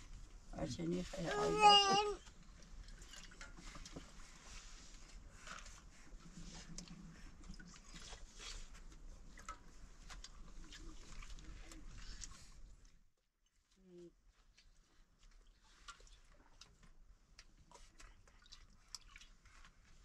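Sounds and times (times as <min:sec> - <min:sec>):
chewing: 0:17.4 - 0:20.0.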